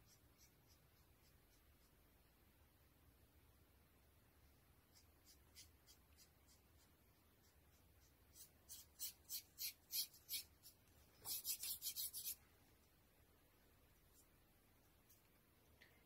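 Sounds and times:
paintbrush strokes on a panel: 4.4 - 12.4.

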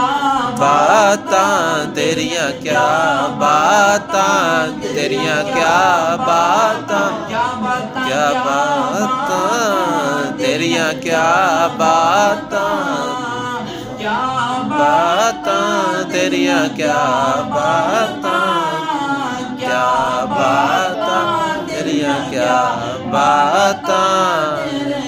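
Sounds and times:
man singing unaccompanied: 0.0 - 25.0.

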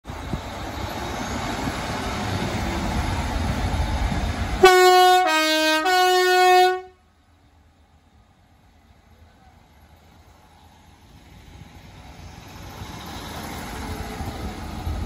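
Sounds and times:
train rumbling: 0.0 - 15.0
two-tone train horn: 4.6 - 7.1.

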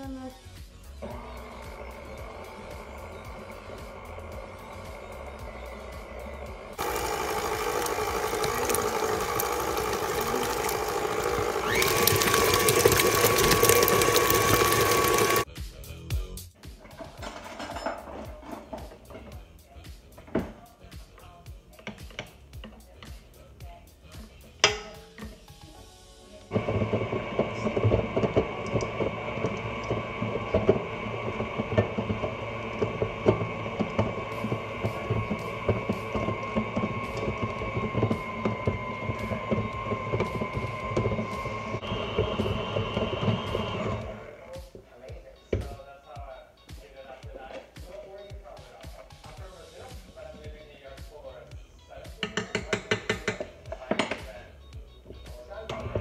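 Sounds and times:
stand mixer beating: 1.0 - 15.5, 26.5 - 44.4
beater clicking in metal bowl: 6.8 - 15.5, 52.2 - 54.2.

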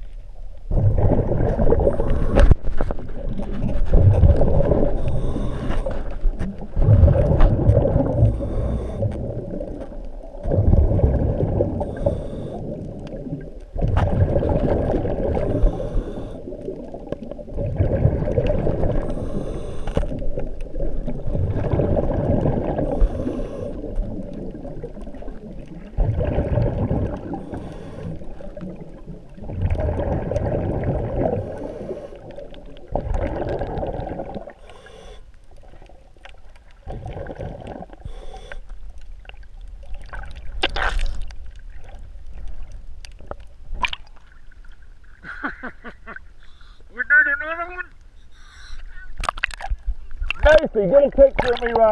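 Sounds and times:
underwater bubbles rumbling: 0.0 - 34.7, 35.5 - 38.1, 38.7 - 45.2, 49.1 - 51.9
faint inhale hiss: 1.7 - 2.8, 4.7 - 6.8, 7.8 - 9.7, 11.5 - 13.2, 14.9 - 17.1, 18.5 - 21.7, 22.6 - 25.4, 27.0 - 29.4, 31.0 - 32.9, 34.2 - 35.9, 37.8 - 39.0, 46.4 - 47.0, 48.1 - 49.0.

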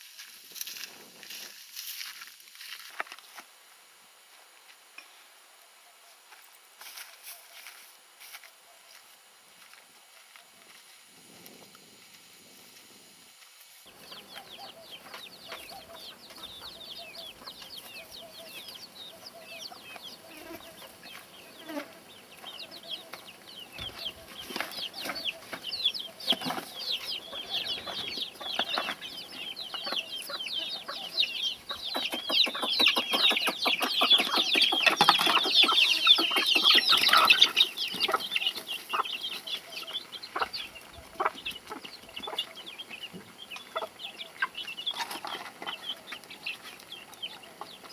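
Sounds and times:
chicks peeping: 13.8 - 47.9
hens clucking: 13.9 - 47.9.

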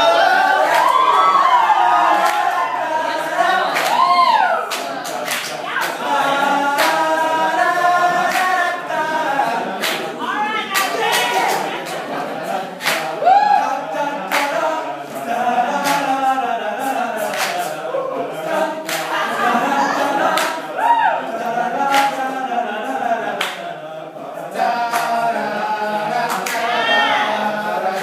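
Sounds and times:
male a cappella group singing: 0.0 - 28.0
sharp claps: 3.7 - 6.0, 6.7 - 7.2, 8.2 - 8.6, 9.7 - 12.1, 12.8 - 13.4, 14.2 - 15.2, 15.8 - 16.2, 16.9 - 17.8, 18.8 - 19.2, 20.3 - 20.6, 21.8 - 22.2, 23.4 - 23.7, 24.9 - 25.2.

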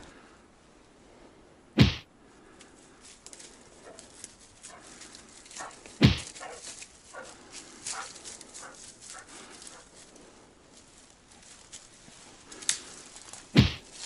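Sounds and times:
rustling through dry leaves: 1.9 - 14.0
dog barking: 6.4 - 6.6.

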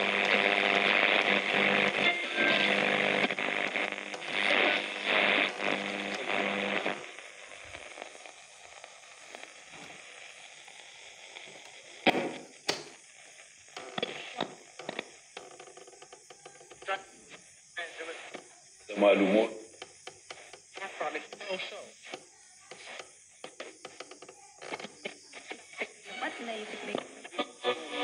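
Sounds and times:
faint crackling static: 0.0 - 28.0
radio playing static-laden reception: 0.0 - 28.0
sharp clicks: 11.6 - 13.0.

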